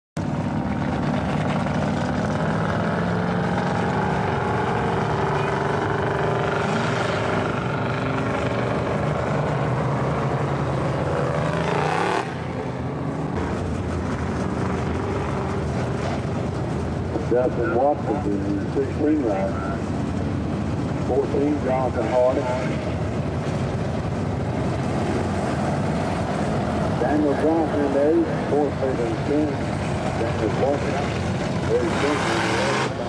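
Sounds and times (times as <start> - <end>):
race car engines running: 0.2 - 33.0
engine revving up: 2.0 - 12.7, 26.7 - 33.0.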